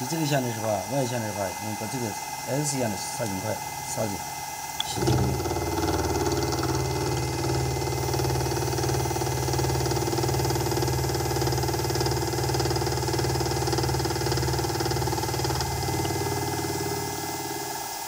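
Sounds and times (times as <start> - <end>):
milling machine motor hum: 0.0 - 18.0.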